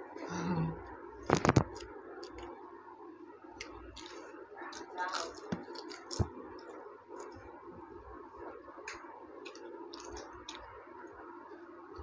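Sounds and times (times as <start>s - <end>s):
eating by hand: 3.6s - 7.4s, 8.8s - 11.2s.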